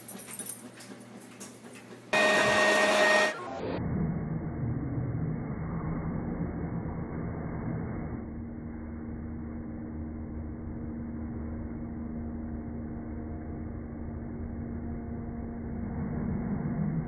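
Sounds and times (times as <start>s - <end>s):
motor humming: 2.2s - 3.7s.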